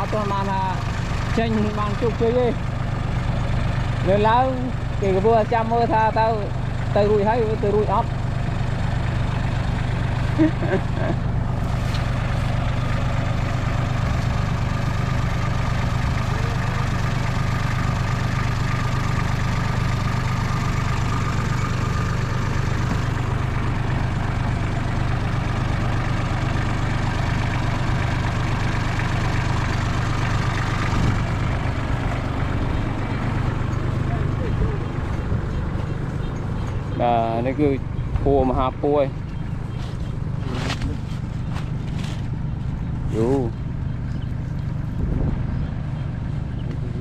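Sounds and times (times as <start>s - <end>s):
tractor engine running: 0.0s - 47.0s.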